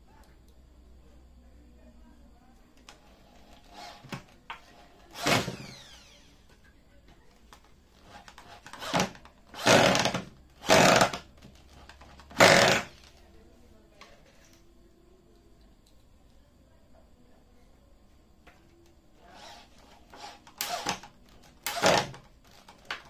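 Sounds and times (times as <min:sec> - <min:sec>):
power drill boring into wood: 0:03.5 - 0:04.2, 0:05.1 - 0:06.3, 0:08.1 - 0:11.2, 0:12.3 - 0:13.0, 0:19.3 - 0:22.2.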